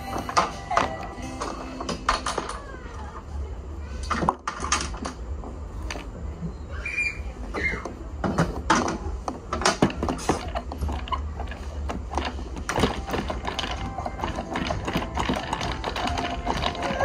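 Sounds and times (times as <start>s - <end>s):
wooden toys clicking and knocking: 0.0s - 2.7s, 4.0s - 6.2s, 7.7s - 17.0s
toy popcorn machine clicking: 9.6s - 17.0s.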